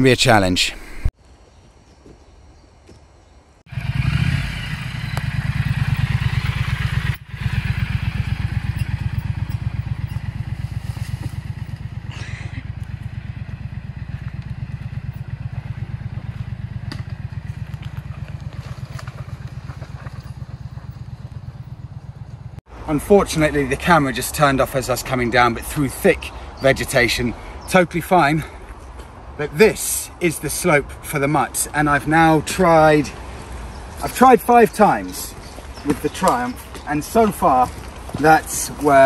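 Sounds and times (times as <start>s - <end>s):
motorcycle engine revving and running: 3.7s - 22.6s.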